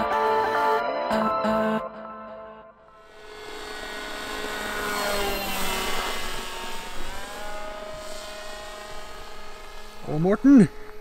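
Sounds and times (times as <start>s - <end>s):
model plane motor whining: 3.0s - 11.0s.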